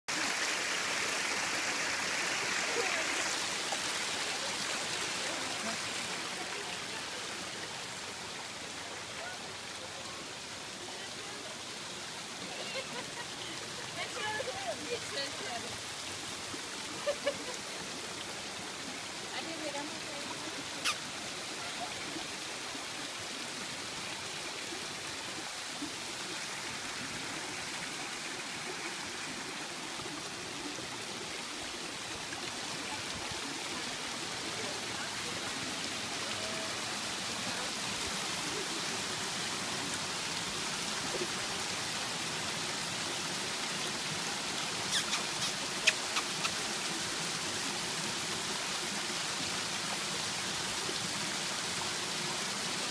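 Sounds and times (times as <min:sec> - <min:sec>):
waterfall splashing over rocks: 0:00.1 - 0:52.9.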